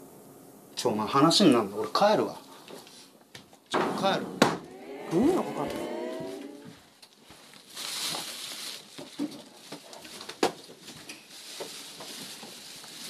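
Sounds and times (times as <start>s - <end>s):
knocks and thumps: 3.7s - 4.7s
rustling: 6.6s - 13.0s.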